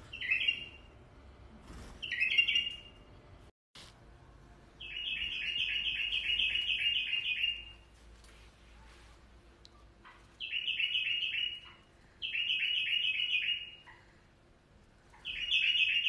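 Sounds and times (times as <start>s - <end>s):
bird chirping and singing: 0.1s - 0.9s, 2.0s - 2.9s, 4.8s - 7.8s, 10.4s - 13.9s, 15.2s - 16.0s.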